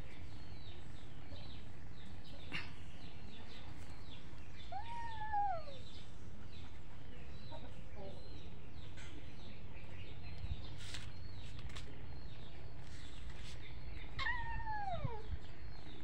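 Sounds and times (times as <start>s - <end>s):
faint bird chirping: 0.0s - 16.0s
kitten meowing: 4.7s - 5.8s, 14.2s - 15.2s.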